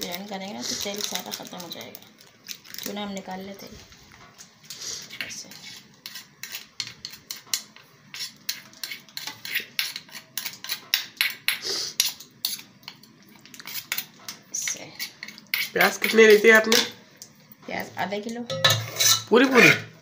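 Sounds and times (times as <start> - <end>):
metal spoon scraping a bowl: 4.7 - 17.0, 18.5 - 19.8.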